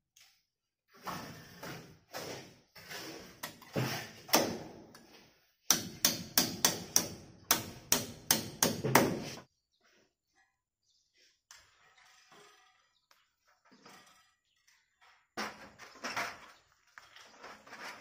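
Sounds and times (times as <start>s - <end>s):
hammer driving nail: 5.7s - 9.4s.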